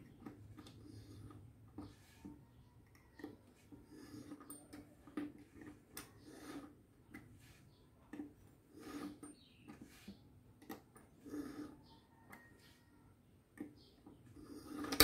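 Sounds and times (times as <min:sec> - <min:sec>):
knife scraping through sharpener: 0:08.7 - 0:10.2.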